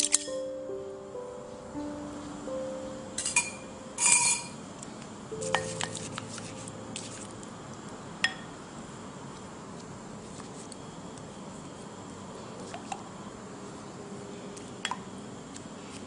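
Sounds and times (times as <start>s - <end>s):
brush clinking against a bowl: 3.2s - 4.6s, 5.4s - 7.3s.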